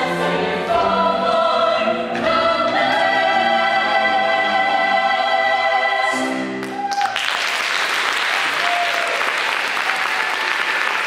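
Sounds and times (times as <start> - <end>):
chorus singing a chord: 0.0 - 6.6
audience applause: 6.6 - 11.0.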